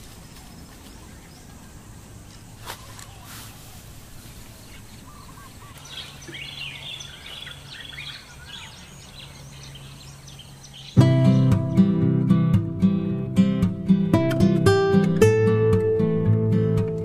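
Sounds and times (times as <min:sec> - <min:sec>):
small birds chirping: 0:00.0 - 0:11.6.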